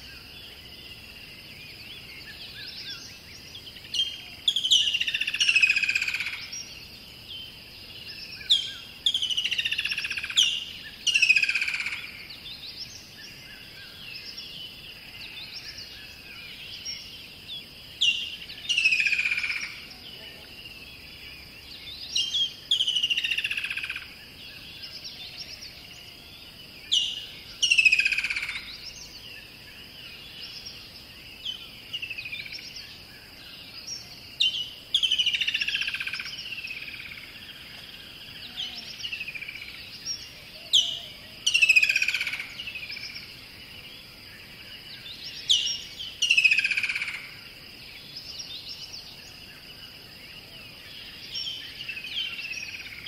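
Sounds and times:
songbird singing: 0.0s - 53.0s.

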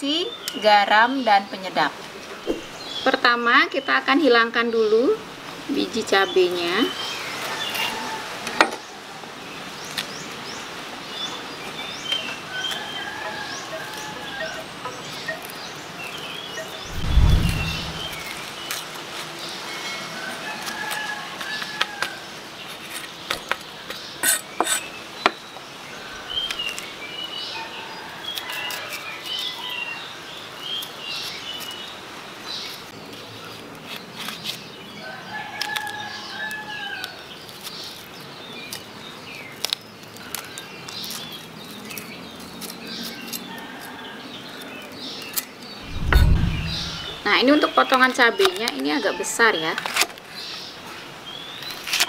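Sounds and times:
birds chirping: 13.9s - 18.7s, 45.7s - 48.6s.

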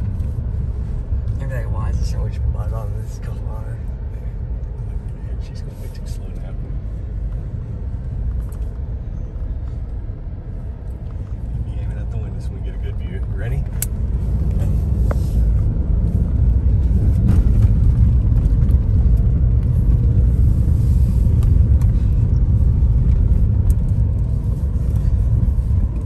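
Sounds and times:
car engine and tyres on dirt: 0.0s - 26.0s.

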